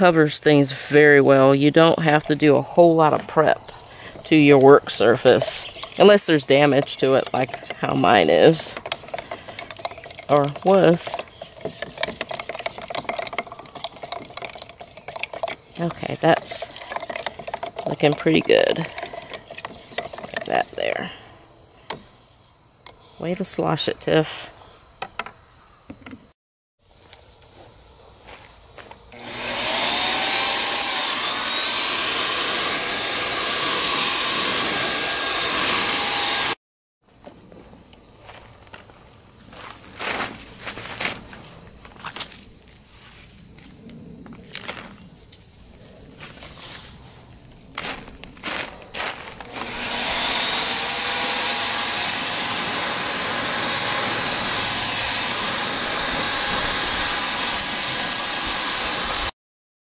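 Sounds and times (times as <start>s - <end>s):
motor whine: 28.8s - 36.6s, 47.8s - 59.3s
paint sprayer blowing hiss: 29.1s - 36.6s, 47.8s - 59.4s.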